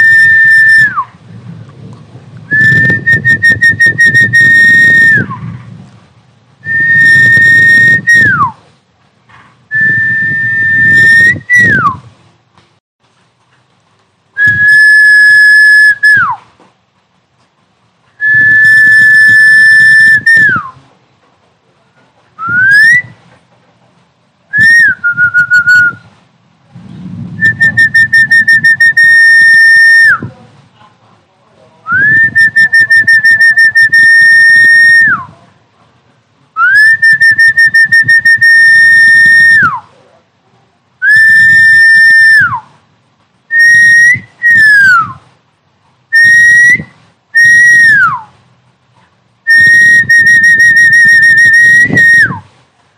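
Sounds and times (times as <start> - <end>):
loud whistle notes: 46.2 - 48.3, 49.5 - 52.4.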